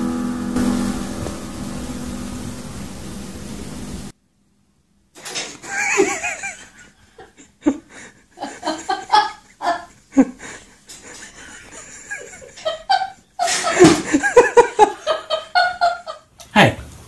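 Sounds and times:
people laughing: 0:05.6 - 0:16.2.

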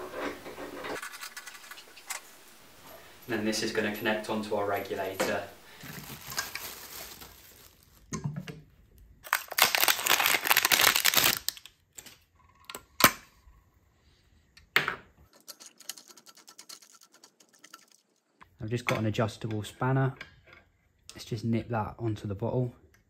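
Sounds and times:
plastic packaging crinkling and tearing: 0:05.7 - 0:08.1, 0:09.2 - 0:11.8.

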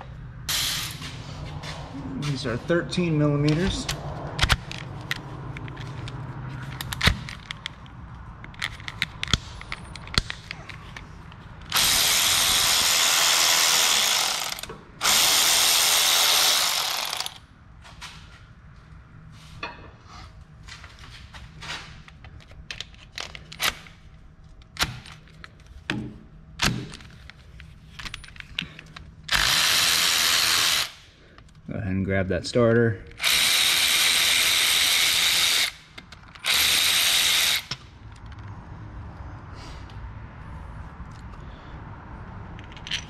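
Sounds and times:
electric ratchet spinning: 0:00.5 - 0:01.1, 0:11.7 - 0:17.4, 0:29.3 - 0:31.0, 0:33.2 - 0:37.8.

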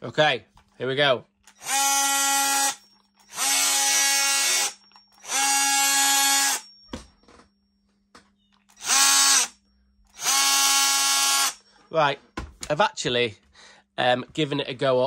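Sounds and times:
oscillating multi-tool buzzing whine: 0:01.5 - 0:06.8, 0:08.7 - 0:11.6.

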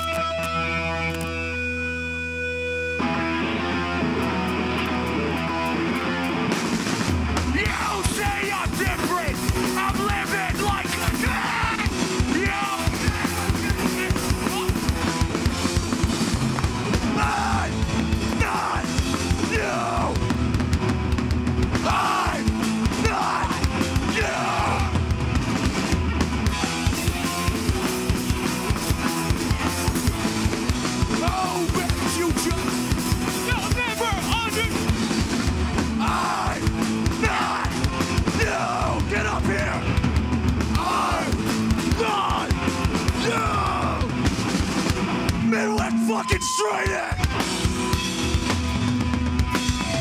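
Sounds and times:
hardcore band playing live: 0:00.0 - 0:50.0
shouted vocals: 0:07.5 - 0:14.9, 0:17.0 - 0:20.3, 0:21.7 - 0:25.0, 0:31.1 - 0:32.7, 0:35.9 - 0:39.9, 0:40.7 - 0:44.2, 0:45.4 - 0:47.4.

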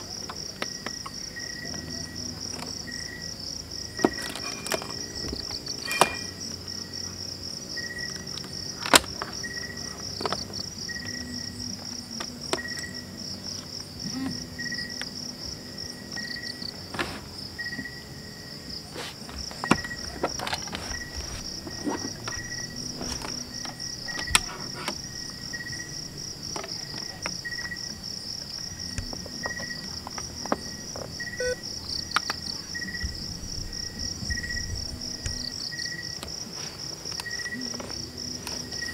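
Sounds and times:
crickets chirping: 0:00.0 - 0:38.9
cables and plugs clicking: 0:08.1 - 0:12.9, 0:19.4 - 0:25.8, 0:28.5 - 0:32.6, 0:35.1 - 0:35.5.

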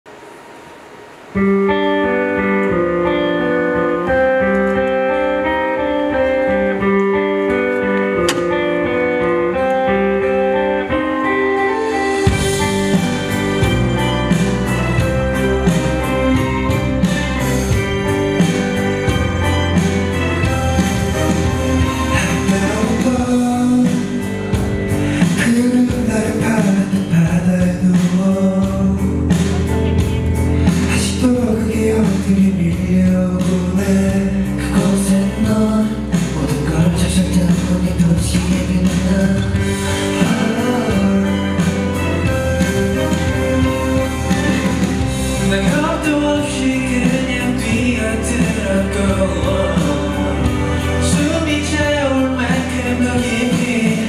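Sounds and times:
live band playing: 0:00.3 - 0:54.0
instrumental accompaniment: 0:00.6 - 0:54.0
electric bass guitar: 0:01.4 - 0:54.0
man singing pop song: 0:21.9 - 0:54.0.

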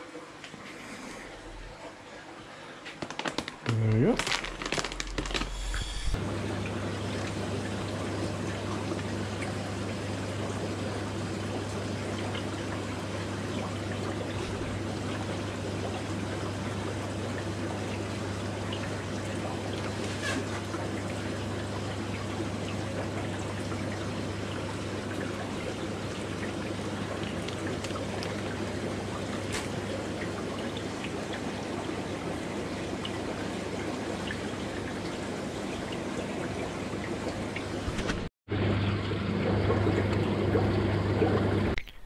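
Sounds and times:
constant low hum: 0:03.7 - 0:42.0
water trickling and splashing: 0:06.2 - 0:42.0.

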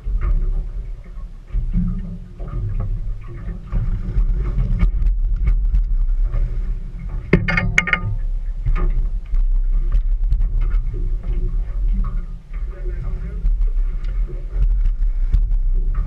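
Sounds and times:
water splashing: 0:00.0 - 0:16.0
wind rumble on microphone: 0:00.0 - 0:16.0
metallic knock: 0:07.3 - 0:08.9.

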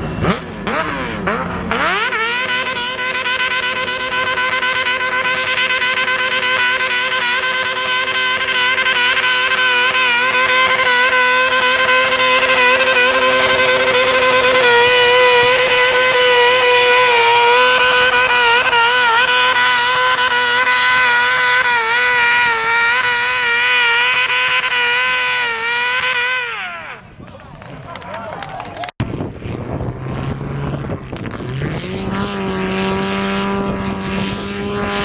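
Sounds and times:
small tractor engine under load: 0:00.0 - 0:27.9.

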